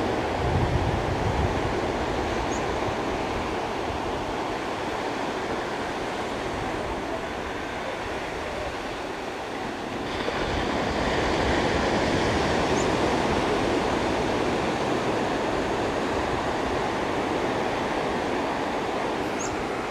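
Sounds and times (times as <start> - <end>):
ocean surf washing: 0.0 - 19.9.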